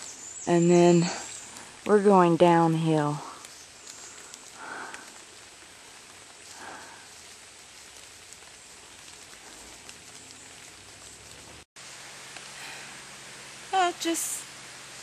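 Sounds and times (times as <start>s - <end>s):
rain pattering on leaves: 0.0s - 15.0s.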